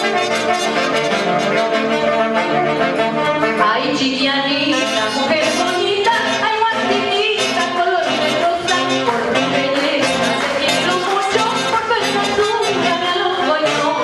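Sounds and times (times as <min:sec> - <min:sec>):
saxophones: 0:00.0 - 0:14.0
trumpet: 0:00.0 - 0:14.0
woman singing into a microphone: 0:03.5 - 0:14.0.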